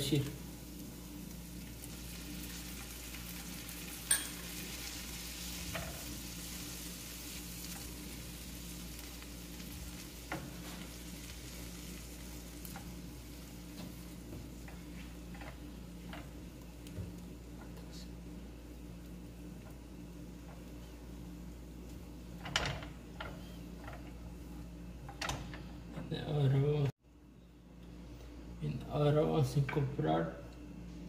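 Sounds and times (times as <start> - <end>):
onion sizzling in frying pan: 0.0 - 17.6.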